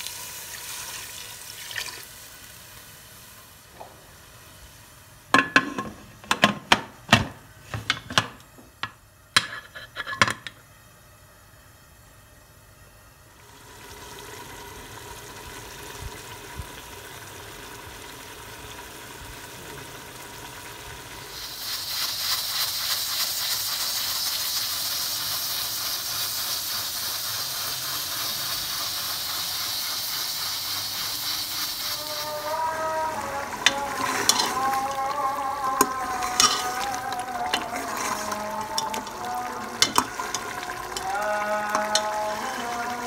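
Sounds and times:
pressure cooker hissing steam: 0.0s - 5.9s, 13.4s - 43.0s
ladle clinking against metal pot: 39.8s - 40.5s.

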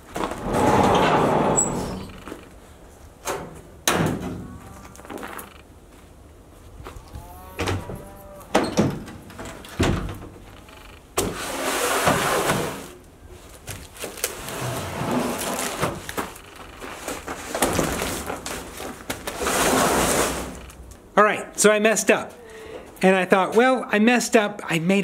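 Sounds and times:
cardboard box scraping: 14.4s - 16.0s, 16.8s - 20.6s.

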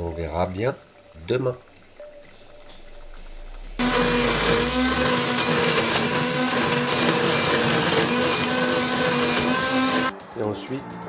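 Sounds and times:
liquid churning: 1.0s - 10.1s
immersion blender motor hum: 3.4s - 10.1s.

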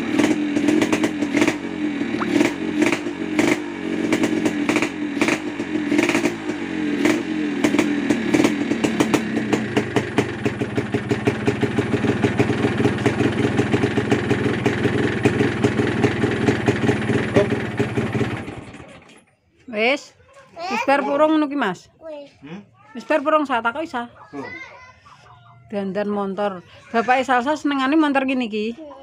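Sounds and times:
motorcycle engine revving and idling: 0.0s - 19.2s.

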